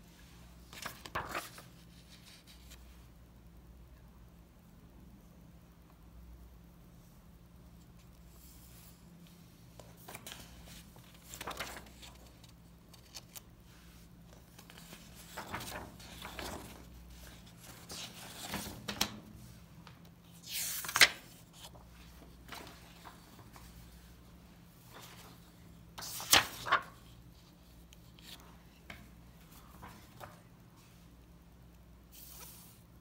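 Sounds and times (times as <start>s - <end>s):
book pages rustling and turning: 0.6s - 2.9s, 7.9s - 31.0s, 32.1s - 32.9s.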